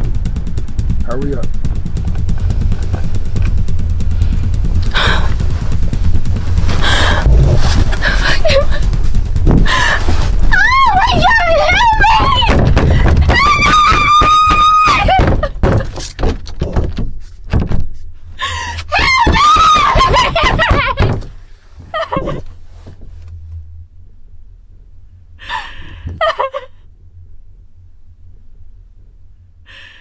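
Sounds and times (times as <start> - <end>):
thuds and knocks of struggle: 4.8 - 10.3, 11.2 - 18.0, 18.9 - 21.4
woman screaming: 10.5 - 12.6, 13.2 - 15.5, 18.9 - 21.0.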